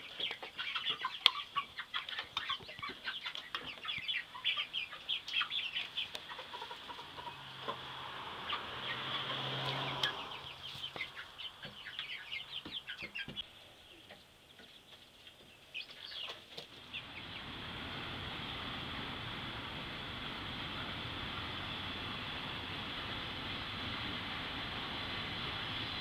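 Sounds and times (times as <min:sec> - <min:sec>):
chickens peeping: 0:00.0 - 0:18.0.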